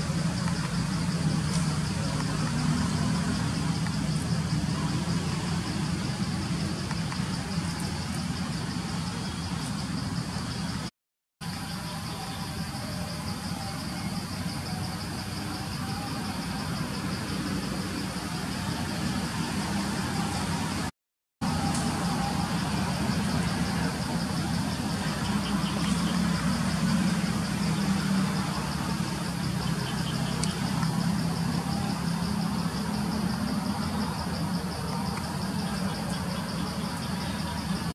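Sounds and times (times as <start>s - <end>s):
insects chirping: 0.0s - 37.9s
low engine-like drone: 12.2s - 37.8s.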